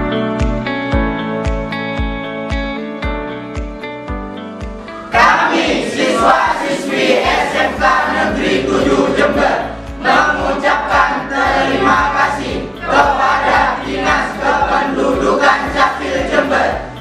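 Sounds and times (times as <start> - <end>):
teenage choir singing: 5.1 - 17.0.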